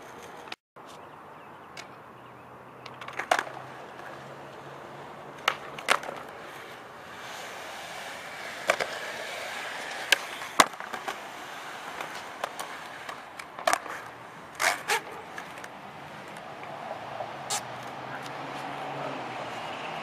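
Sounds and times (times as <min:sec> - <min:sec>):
skateboard wheels rolling on concrete: 0:00.0 - 0:20.0
skateboard clacking on ground: 0:02.8 - 0:04.6, 0:05.3 - 0:16.8.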